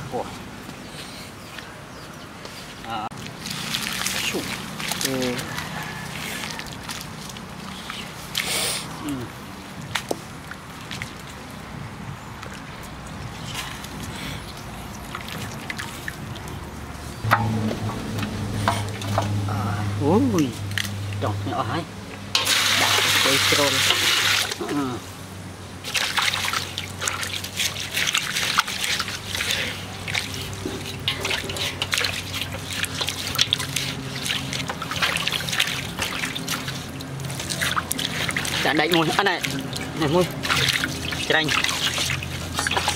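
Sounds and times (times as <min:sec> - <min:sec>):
water dripping into a metal basin: 0:14.0 - 0:21.4, 0:25.9 - 0:42.9.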